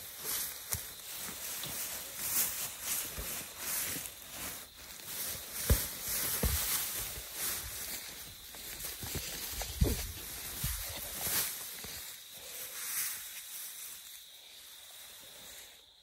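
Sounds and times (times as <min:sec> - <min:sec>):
dry grass rustling: 0:00.0 - 0:15.6.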